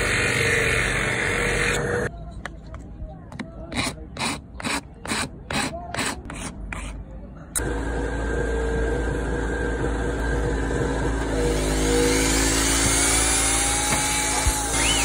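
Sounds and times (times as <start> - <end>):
power tool motor running: 0.0 - 2.1, 7.6 - 15.0.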